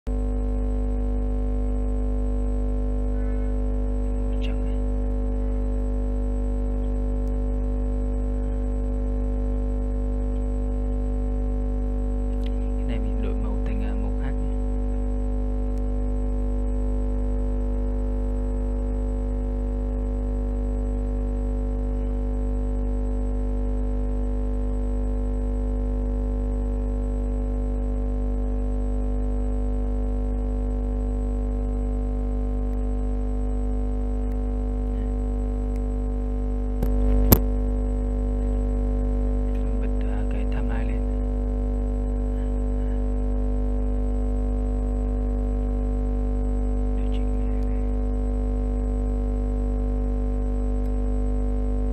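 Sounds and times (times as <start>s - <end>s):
sharp click: 36.8s - 37.5s.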